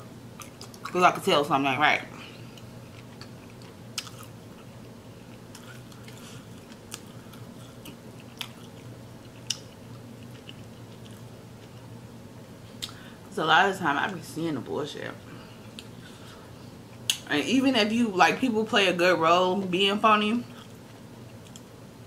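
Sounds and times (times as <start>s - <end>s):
low steady hum: 0.0s - 22.0s
person chewing food: 0.4s - 0.9s, 2.2s - 11.9s, 15.4s - 17.2s, 20.5s - 21.7s.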